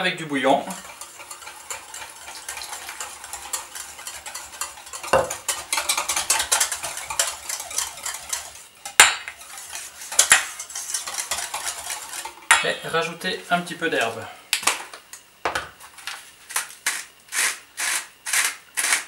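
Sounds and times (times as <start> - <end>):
whisk scraping metal bowl: 0.4 - 14.2.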